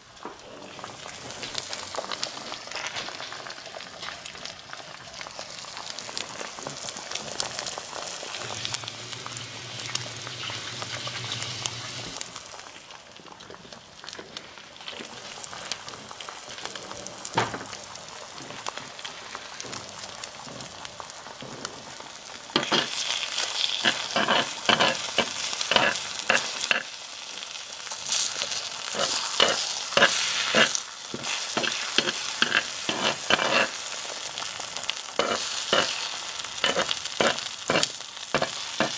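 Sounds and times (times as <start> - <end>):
egg sizzling in a skillet: 0.0 - 38.9
spoon scraping and clicking on pan: 22.6 - 22.9, 23.8 - 26.8, 31.6 - 33.7, 35.2 - 36.0, 36.6 - 38.9.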